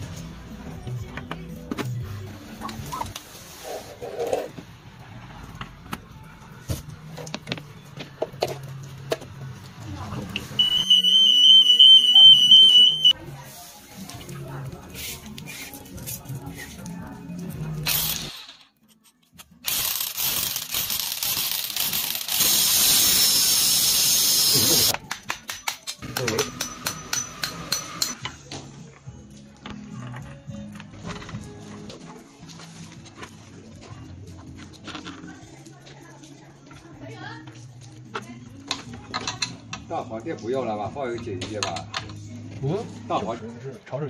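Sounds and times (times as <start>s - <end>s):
hammer drill boring into tile: 19.7s - 24.9s.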